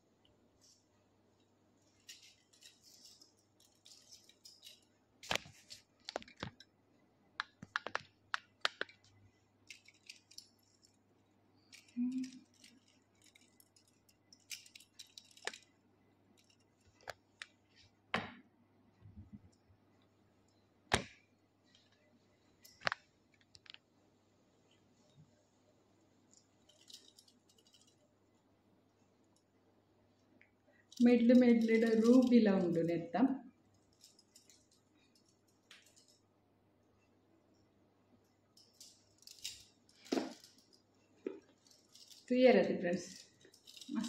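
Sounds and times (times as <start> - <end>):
metal beads clicking: 1.9 - 6.7, 7.8 - 11.0, 11.6 - 15.8, 26.3 - 28.0, 30.7 - 32.8, 33.7 - 36.3, 38.3 - 42.3, 42.9 - 44.0.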